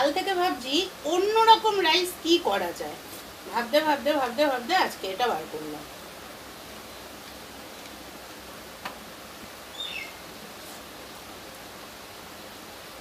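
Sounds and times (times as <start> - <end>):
steady background hiss: 0.0 - 13.0
high falling chirp: 9.7 - 10.3.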